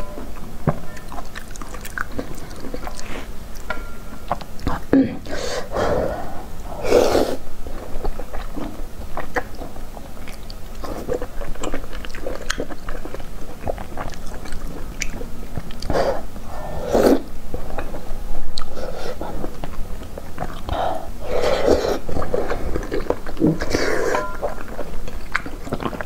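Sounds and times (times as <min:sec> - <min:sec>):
wet chewing clicks and smacks: 0:00.4 - 0:03.7, 0:07.9 - 0:15.9, 0:24.4 - 0:26.0.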